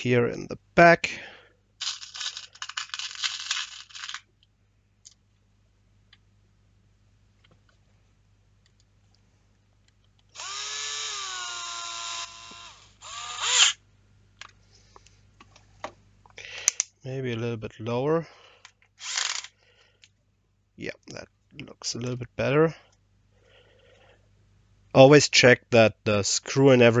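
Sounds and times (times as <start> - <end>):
screws rattling in a box: 1.8 - 4.3, 19.0 - 19.5
cordless drill driving screw: 10.4 - 13.8, 19.0 - 19.5.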